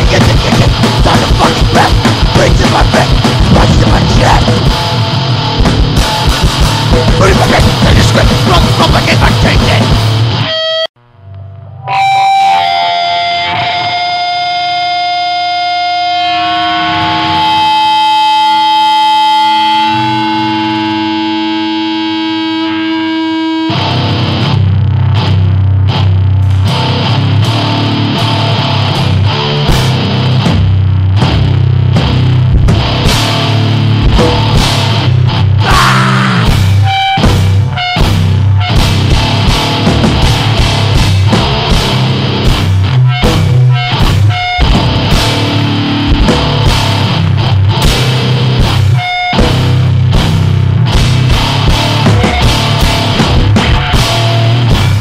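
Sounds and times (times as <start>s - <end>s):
pounding drum kit: 0.0s - 10.4s, 26.4s - 55.0s
electric guitar feedback: 0.0s - 55.0s
high-pitched squeals: 10.4s - 23.8s, 43.0s - 46.1s.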